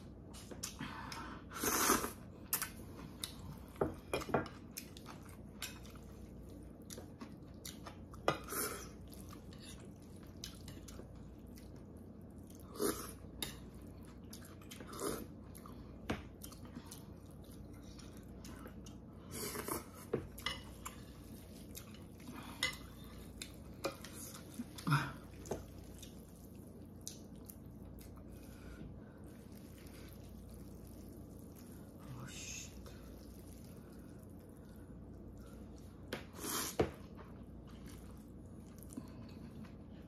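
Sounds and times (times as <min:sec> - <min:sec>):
slurping noodles: 0:01.5 - 0:02.2
chewing: 0:01.9 - 0:32.0, 0:32.7 - 0:40.0.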